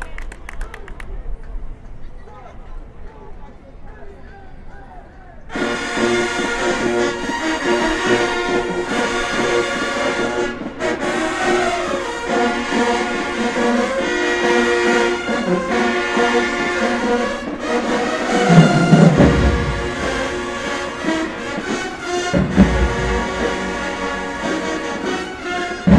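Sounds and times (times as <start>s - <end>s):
marching band playing brass tune: 5.5s - 25.9s.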